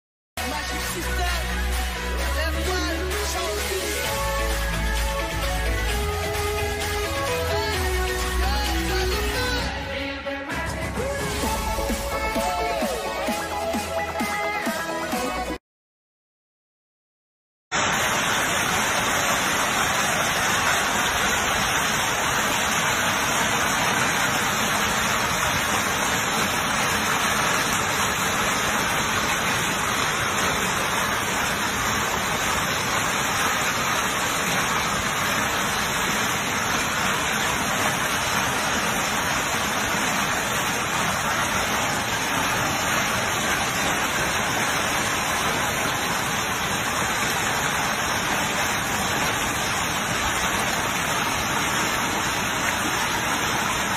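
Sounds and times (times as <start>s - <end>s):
heavy rain and hail: 17.8s - 53.9s.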